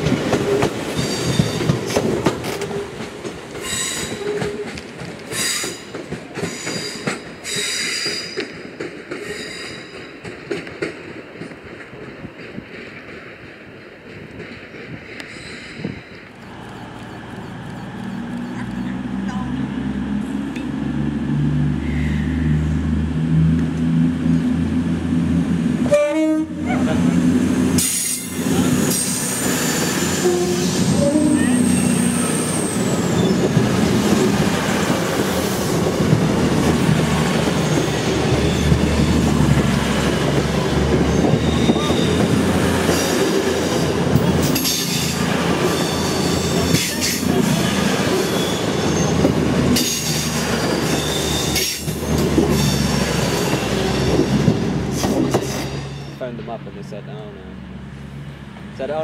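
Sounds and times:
wheels clicking over rail joints: 0.0s - 19.4s
train moving: 0.0s - 59.0s
diesel engines humming: 16.3s - 59.0s
train horn blast: 25.8s - 27.0s, 30.1s - 32.2s
wheels squealing: 27.8s - 34.2s, 36.9s - 56.2s.

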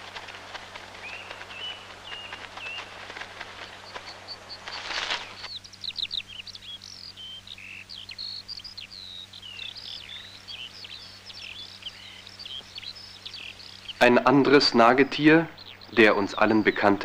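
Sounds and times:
rustling and crackling: 0.0s - 5.6s
faint steady hum: 0.0s - 17.0s
songbirds chirping: 0.0s - 17.0s.

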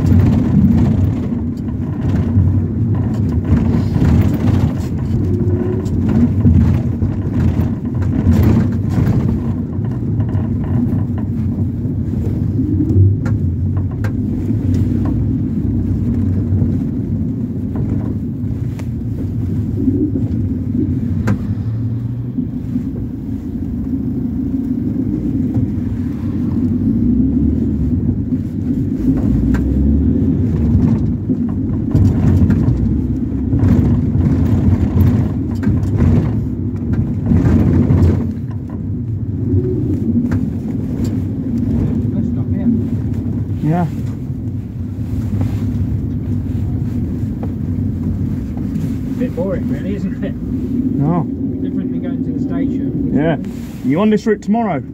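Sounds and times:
light clicks and rattles: 0.0s - 19.6s
engine and road rumble: 0.0s - 54.9s.

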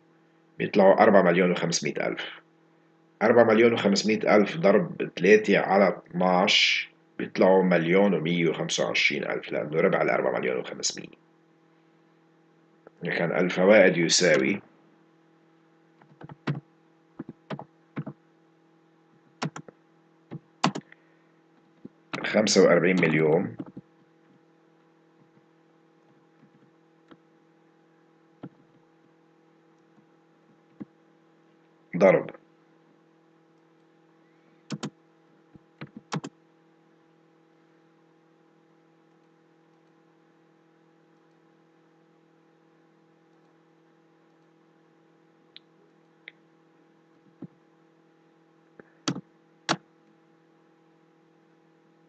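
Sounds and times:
faint steady hum: 0.0s - 52.0s
mouse and keyboard clicks: 19.4s - 19.7s, 20.6s - 20.9s, 34.7s - 34.9s
computer key click: 34.7s - 34.9s.

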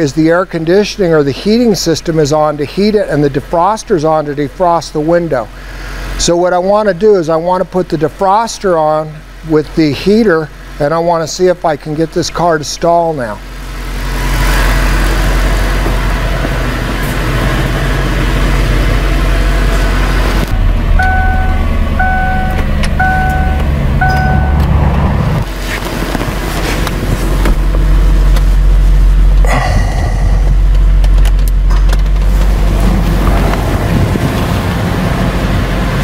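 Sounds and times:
car engine idling: 13.4s - 36.0s
electronic chime beeps: 21.0s - 24.7s.

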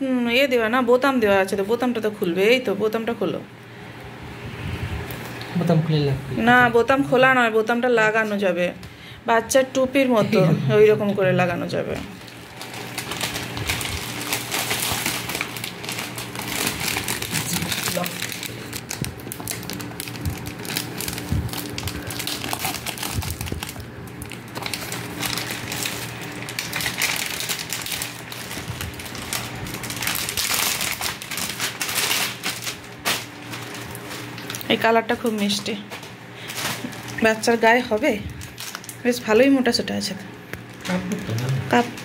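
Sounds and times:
plastic bags crinkling: 11.7s - 39.3s.

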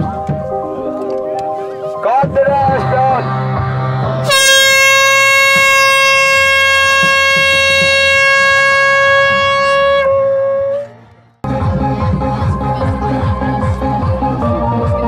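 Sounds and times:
horn blast through megaphone: 4.2s - 11.0s.

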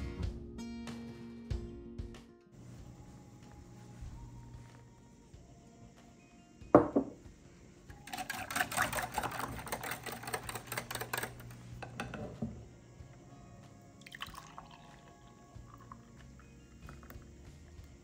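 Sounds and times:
glass mug knocking on table: 6.8s - 7.2s
metal utensil stirring in glass bowl: 8.0s - 12.4s
liquid pouring into mug: 8.0s - 12.7s, 13.9s - 18.0s.

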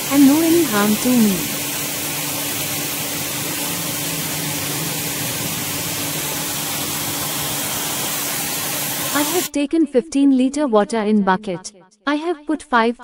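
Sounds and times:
pressure washer water spray hiss: 0.0s - 9.5s
washer motor humming: 0.0s - 9.5s.

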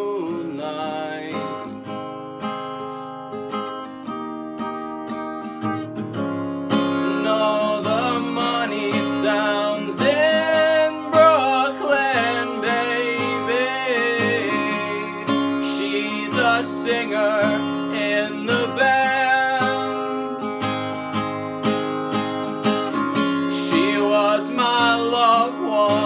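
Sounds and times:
high wordless vocal melody: 0.0s - 2.2s, 6.4s - 21.9s, 22.9s - 26.0s
acoustic guitar strumming: 0.0s - 26.0s.

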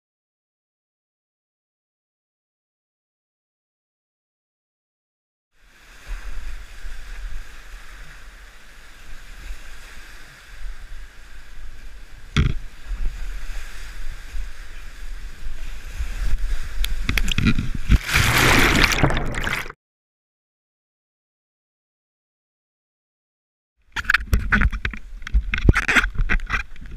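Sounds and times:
water churning and splashing: 17.1s - 19.8s.

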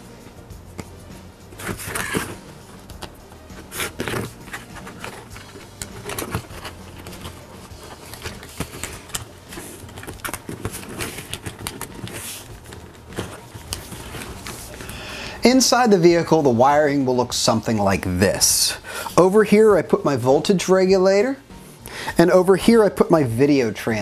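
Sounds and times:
plastic clicks and scrapes: 3.8s - 14.9s.

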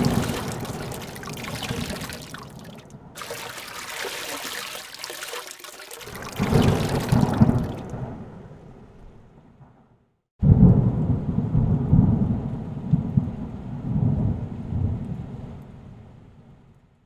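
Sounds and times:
heavy rain and rushing water: 0.0s - 7.9s.

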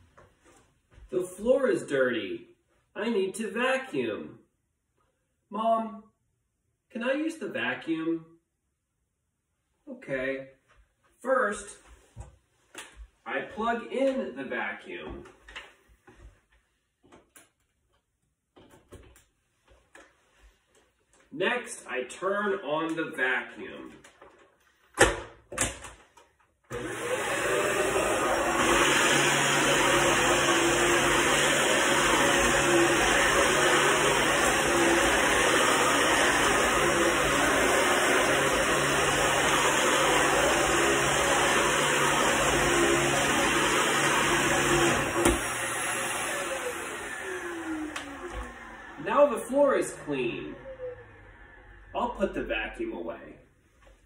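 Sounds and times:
vacuum cleaner on carpet: 26.7s - 51.8s.

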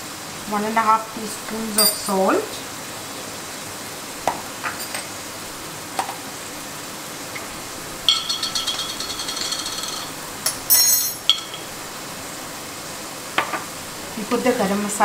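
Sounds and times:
onions sizzling in a wok: 0.0s - 15.0s
lid and jar clinking on counter: 1.8s - 2.1s, 8.1s - 11.7s.

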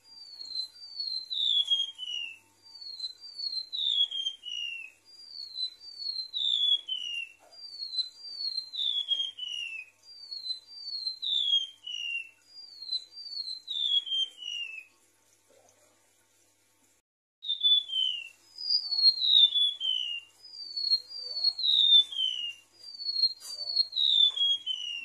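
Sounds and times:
bird whistling downward: 0.0s - 14.9s, 17.4s - 25.0s.

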